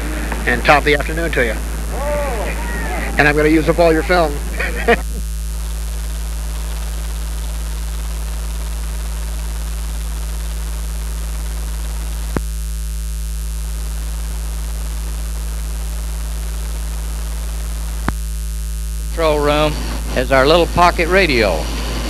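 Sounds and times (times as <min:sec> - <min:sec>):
recording hiss: 0:00.0 - 0:12.5, 0:19.1 - 0:22.0
electrical mains hum: 0:00.0 - 0:22.0.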